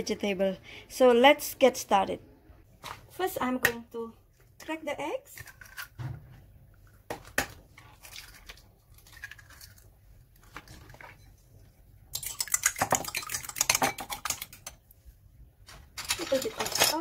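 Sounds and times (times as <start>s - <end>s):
fork beating eggs in bowl: 12.1s - 14.9s.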